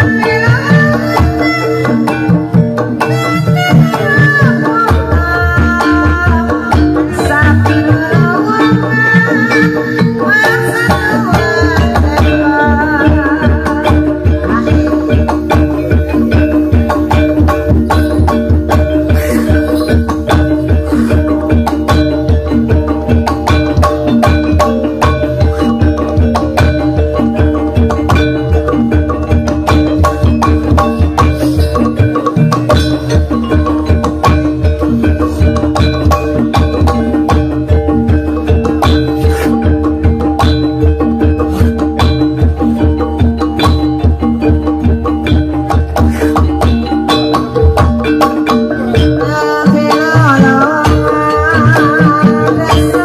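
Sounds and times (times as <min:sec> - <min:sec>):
gamelan music: 0:00.0 - 0:53.0
hand drum strokes: 0:00.0 - 0:53.0
mallet-struck keyed instruments: 0:00.0 - 0:53.0.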